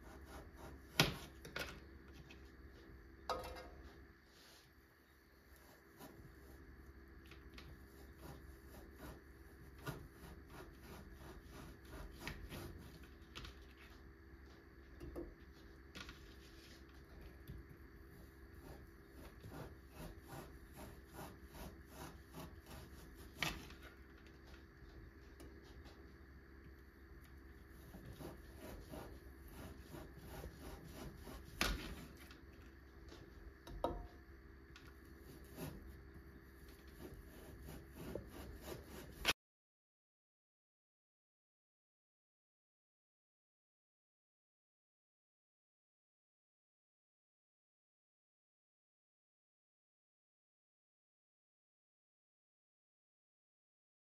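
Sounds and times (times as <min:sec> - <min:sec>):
knife sawing through minced meat: 0:00.0 - 0:01.0, 0:07.8 - 0:13.0, 0:18.6 - 0:23.6, 0:27.8 - 0:32.2, 0:35.2 - 0:35.9, 0:36.8 - 0:39.3.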